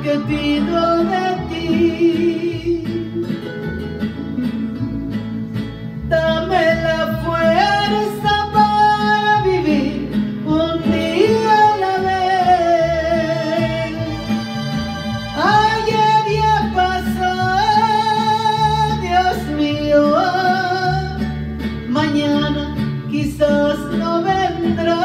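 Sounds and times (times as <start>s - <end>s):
plucked acoustic guitar: 0.0s - 25.0s
gliding lead melody: 10.8s - 18.0s.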